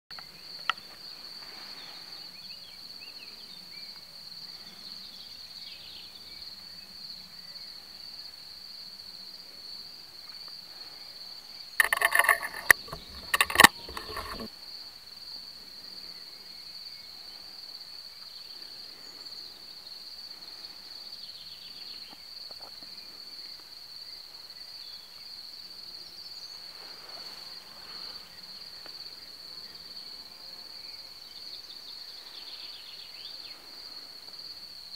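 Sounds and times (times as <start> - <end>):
cricket trill: 6.3 - 34.9
camera handling rustling and knocks: 11.8 - 14.5.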